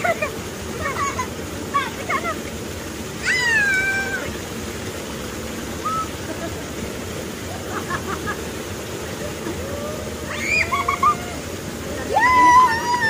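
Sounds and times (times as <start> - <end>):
flowing water rushing: 0.0 - 13.0.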